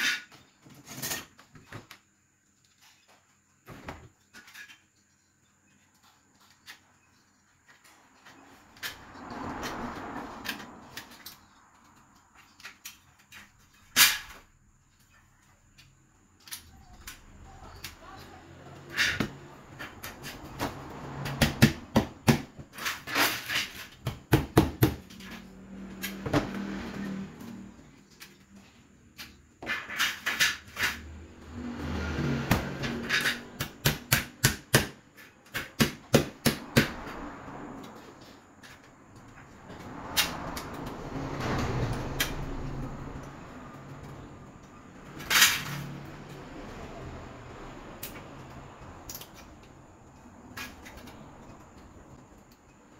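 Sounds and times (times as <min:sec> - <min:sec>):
metal scraping on concrete: 0:00.0 - 0:01.6, 0:05.8 - 0:15.2, 0:16.8 - 0:21.4, 0:22.6 - 0:24.0, 0:25.0 - 0:33.8, 0:36.6 - 0:52.2
aluminium strip scraping: 0:22.7 - 0:24.0, 0:25.0 - 0:33.8, 0:45.0 - 0:46.6.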